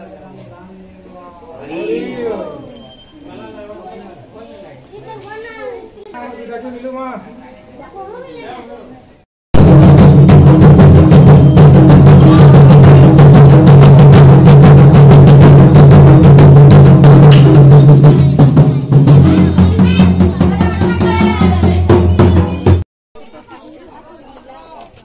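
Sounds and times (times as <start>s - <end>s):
fast drum strokes: 9.6s - 22.8s.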